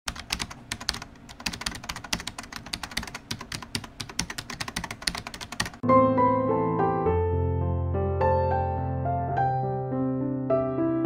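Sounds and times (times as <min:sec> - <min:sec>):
keyboard keystroke clicks: 0:00.1 - 0:05.8.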